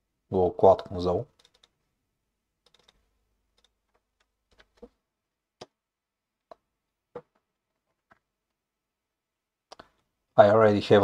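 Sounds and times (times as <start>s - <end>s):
keyboard and mouse clicks: 1.3s - 1.8s, 2.6s - 5.0s.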